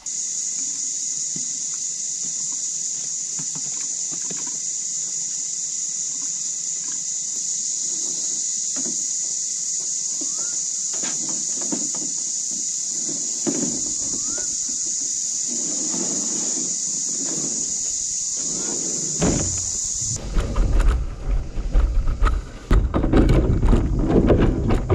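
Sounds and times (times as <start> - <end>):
cicadas droning: 0.0 - 24.9
kayak knocking on roof rack: 19.2 - 24.9.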